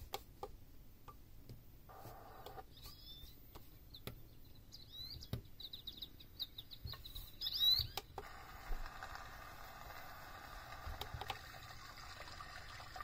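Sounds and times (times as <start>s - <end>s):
recorded birdsong from speaker: 2.2s - 8.2s.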